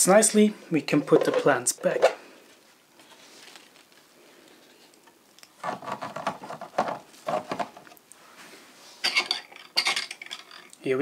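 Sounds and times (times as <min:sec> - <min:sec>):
plastic knocking and rubbing: 0:05.6 - 0:07.9.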